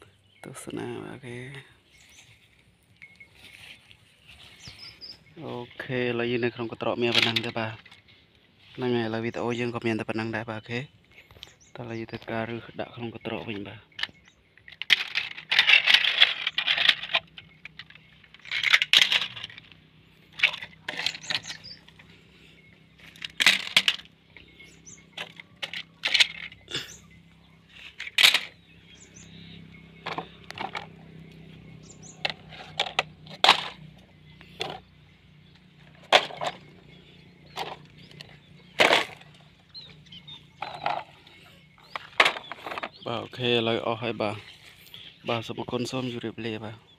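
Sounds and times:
plastic toys clattering: 0:06.9 - 0:08.1, 0:13.4 - 0:22.2, 0:22.9 - 0:27.1, 0:27.7 - 0:28.6, 0:30.0 - 0:31.2, 0:31.9 - 0:34.8, 0:35.8 - 0:39.7, 0:40.3 - 0:44.5.

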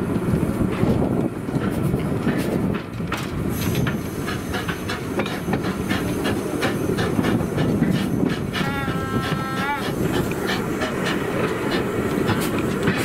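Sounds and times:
steam locomotive rumble: 0:00.0 - 0:13.0
wheels knocking and clattering on rails: 0:00.0 - 0:13.0
steam hissing: 0:03.4 - 0:13.0.

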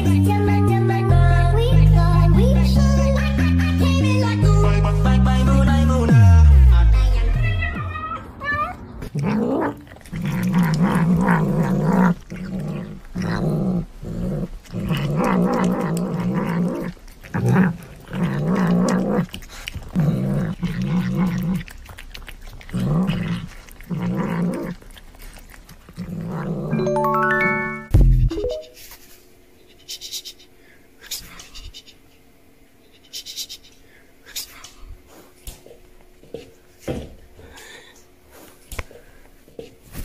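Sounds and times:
cat growling: 0:08.7 - 0:26.8.

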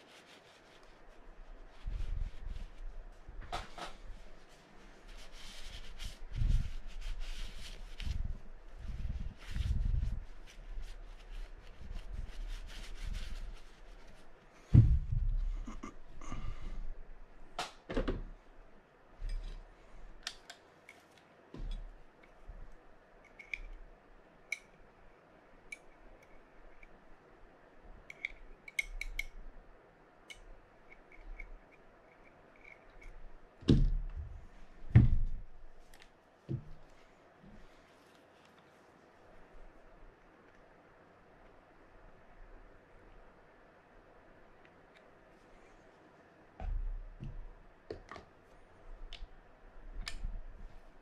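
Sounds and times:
tools clicking and scraping: 0:23.2 - 0:23.8, 0:28.0 - 0:29.4.

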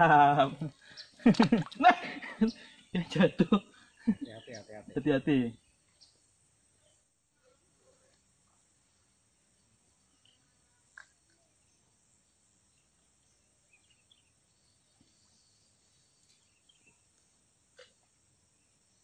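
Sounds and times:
faint chirps: 0:00.0 - 0:19.0
insect drone: 0:00.0 - 0:19.0.

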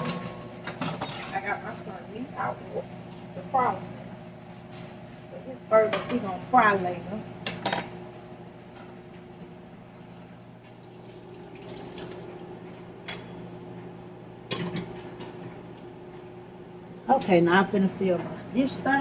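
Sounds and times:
faucet running into sink: 0:10.8 - 0:12.3.

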